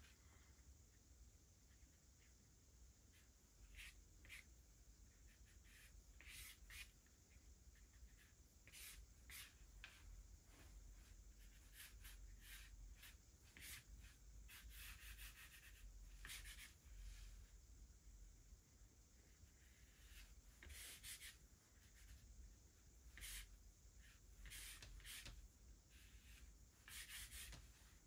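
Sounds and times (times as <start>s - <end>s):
sketching tool scratching paper: 26.0s - 27.8s.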